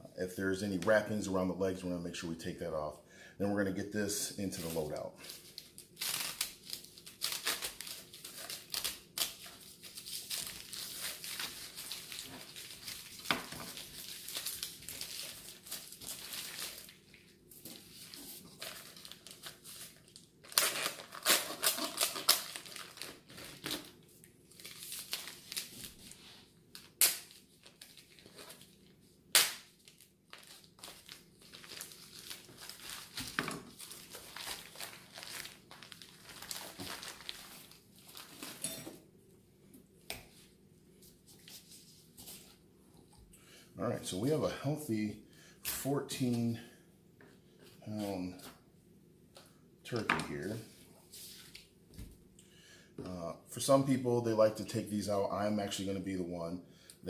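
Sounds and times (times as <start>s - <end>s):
plastic wrapper crinkling and tearing: 4.5s - 38.6s.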